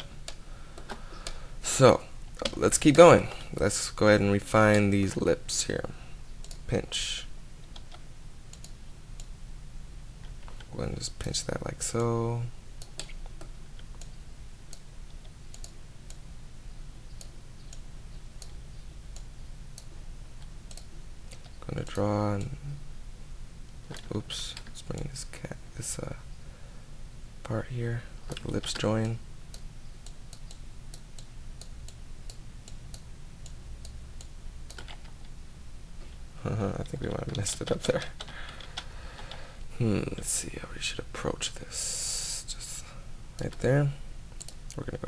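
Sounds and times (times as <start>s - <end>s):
steady low hum: 0.0s - 45.0s
computer mouse clicking: 6.4s - 6.7s, 7.7s - 9.3s, 12.8s - 16.2s, 20.7s - 22.5s, 28.3s - 35.3s, 44.4s - 44.8s.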